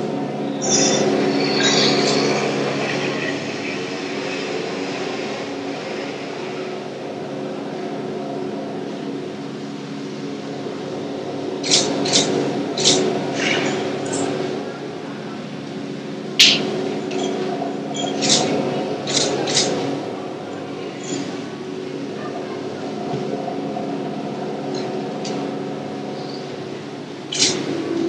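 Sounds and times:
keyboard drone chord: 0:19.8 - 0:28.0.

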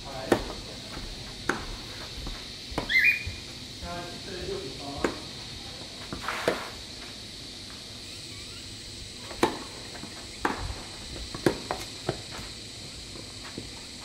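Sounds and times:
high-pitched hum: 0:00.0 - 0:06.0, 0:07.4 - 0:14.0
footsteps on artificial grass: 0:00.1 - 0:03.6
tennis ball strikes: 0:09.3 - 0:09.7, 0:10.4 - 0:12.2.

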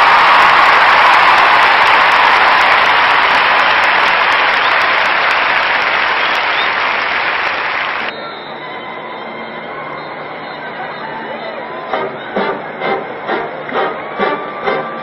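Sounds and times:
stadium crowd applauding: 0:00.0 - 0:08.3, 0:12.0 - 0:15.0.

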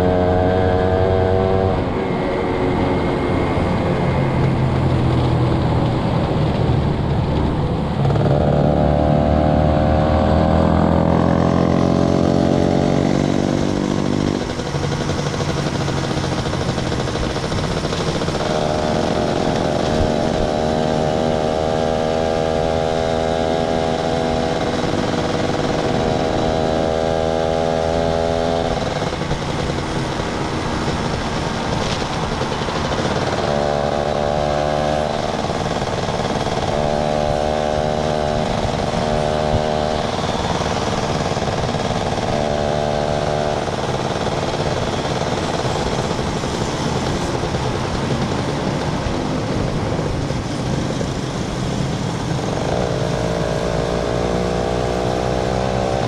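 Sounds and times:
small motorcycle engine running: 0:00.0 - 0:56.0.

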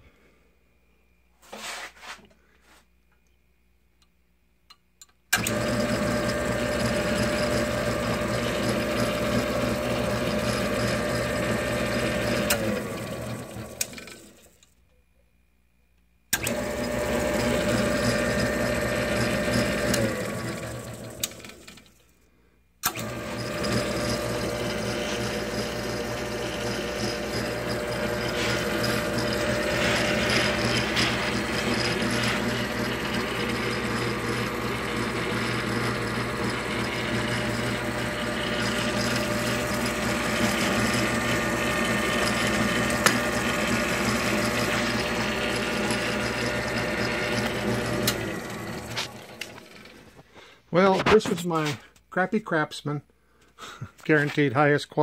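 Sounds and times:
drill press motor humming: 0:05.3 - 0:14.6, 0:16.3 - 0:22.0, 0:22.8 - 0:50.2
motor winding down: 0:05.4 - 0:14.5, 0:16.3 - 0:21.9, 0:22.8 - 0:50.1.

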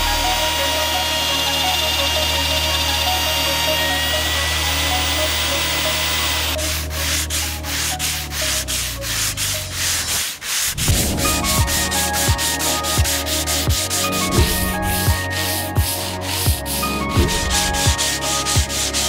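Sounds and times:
electric router cutting wood: 0:00.0 - 0:07.2
sanding block on wood: 0:00.0 - 0:19.0.

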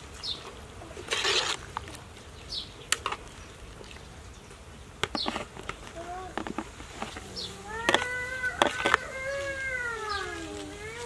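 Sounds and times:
ladle scraping and splashing soup: 0:00.4 - 0:02.1.

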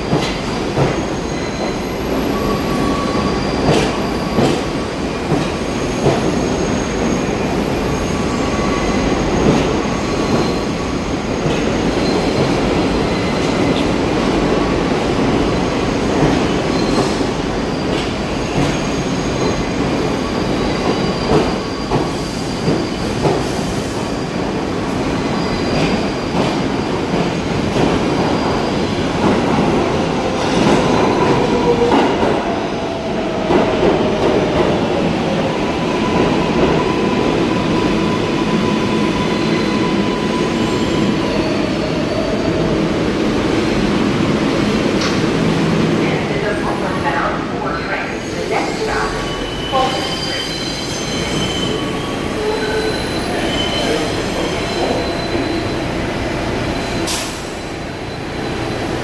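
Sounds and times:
subway train rumbling and rattling: 0:00.0 - 0:59.0
high wheel squeal: 0:48.2 - 0:56.0.

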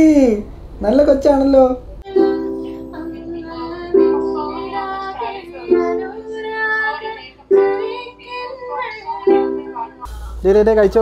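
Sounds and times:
ukulele strummed in slow chords: 0:02.0 - 0:09.8
girl singing: 0:02.0 - 0:10.4.

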